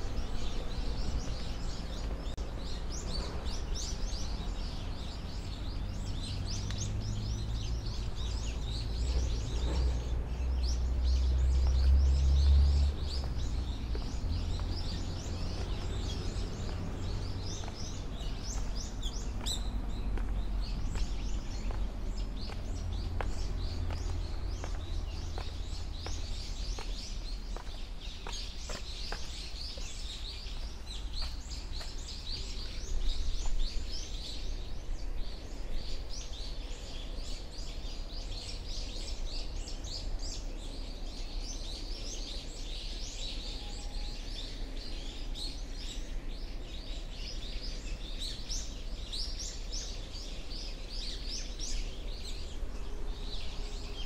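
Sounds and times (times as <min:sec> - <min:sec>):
steady low rumble: 0:00.0 - 0:42.1
small birds chirping: 0:00.0 - 0:54.0.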